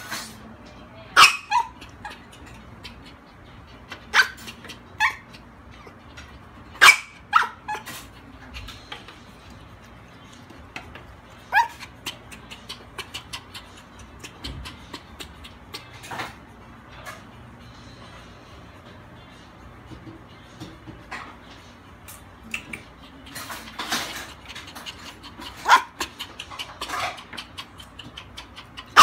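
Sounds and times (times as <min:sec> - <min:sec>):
small dog barking: 0:01.2 - 0:02.2, 0:04.1 - 0:05.2, 0:06.8 - 0:07.9, 0:11.5 - 0:11.9, 0:25.6 - 0:26.0.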